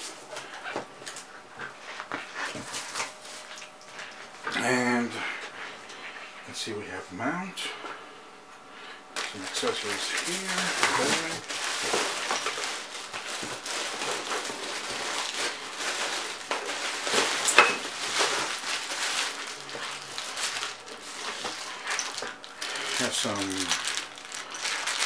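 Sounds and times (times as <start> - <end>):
plastic packaging crinkling: 9.2 - 25.0.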